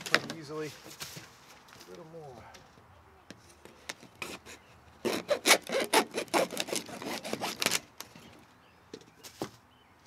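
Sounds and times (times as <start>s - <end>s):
hacksaw cutting plastic pipe: 4.1s - 7.9s.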